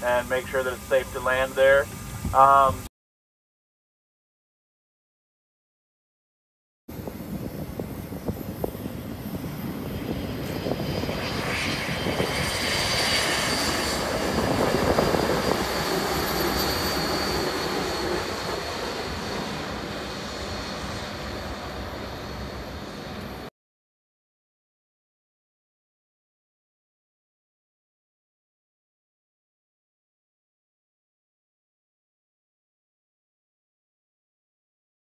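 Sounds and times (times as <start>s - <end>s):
jet engines whining: 0.0s - 2.9s, 6.9s - 23.5s.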